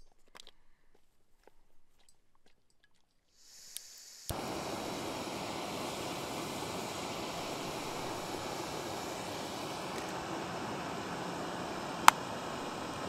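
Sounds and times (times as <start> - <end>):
gas hissing: 3.4 - 13.0
gas burner roaring: 4.1 - 13.0
stove ignition click: 4.3 - 13.0.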